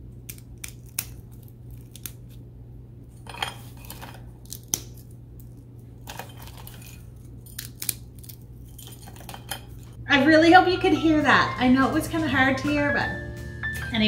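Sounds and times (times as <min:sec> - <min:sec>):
candy bark snapping and crunching: 0:00.0 - 0:02.5, 0:03.8 - 0:08.8.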